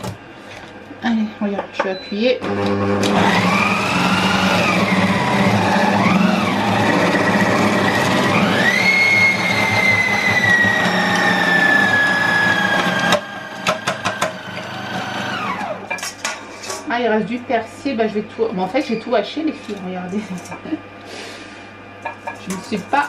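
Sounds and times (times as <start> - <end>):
kitchen robot motor whine: 2.4 - 15.8.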